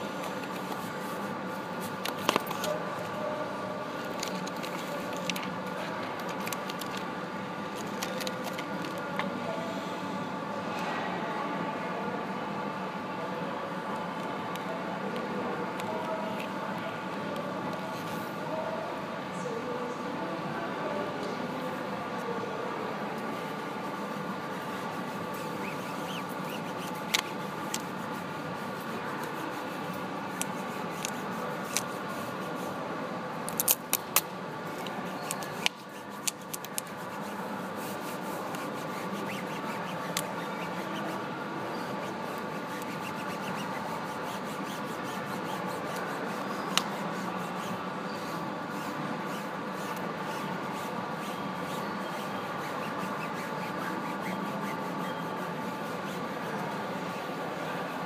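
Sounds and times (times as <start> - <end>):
steady background hum: 0.0 - 58.0
film rubbing and scraping: 23.2 - 32.8, 33.4 - 58.0.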